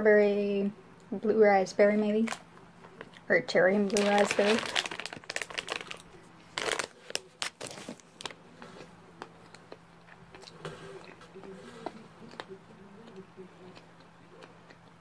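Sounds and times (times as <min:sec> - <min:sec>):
plastic candy bag crinkling: 0:02.2 - 0:02.4, 0:03.0 - 0:08.4
soft chewing: 0:06.0 - 0:15.0.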